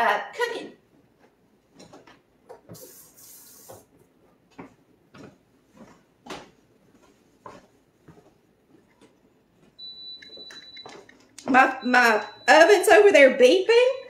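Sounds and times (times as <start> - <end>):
light footsteps: 0.9 - 3.0, 3.6 - 11.7.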